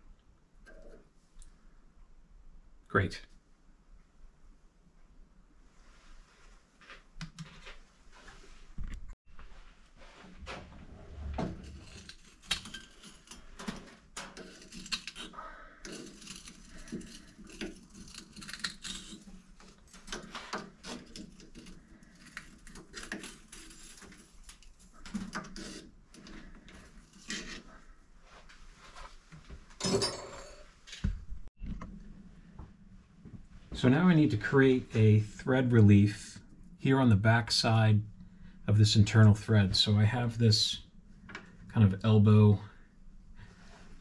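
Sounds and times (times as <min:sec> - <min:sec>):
metal tools clinking and clattering: 0:29.8 - 0:30.7.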